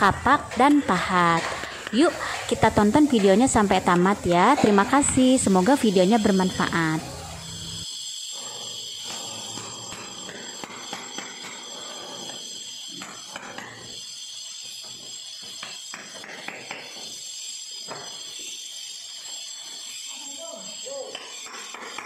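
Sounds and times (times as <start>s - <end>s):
hammer striking metal chisel: 9.0s - 14.0s, 14.8s - 17.1s, 21.0s - 22.0s.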